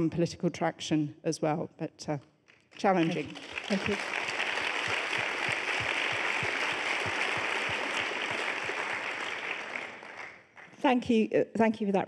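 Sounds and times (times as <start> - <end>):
audience applauding: 3.0 - 10.8.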